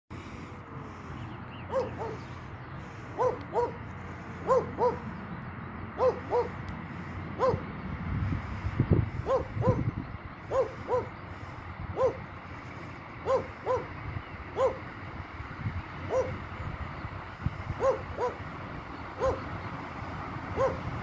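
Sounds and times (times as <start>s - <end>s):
animal calling: 1.6s - 2.5s, 3.1s - 5.2s, 6.0s - 6.6s, 9.2s - 11.2s, 12.0s - 12.3s, 13.2s - 14.9s.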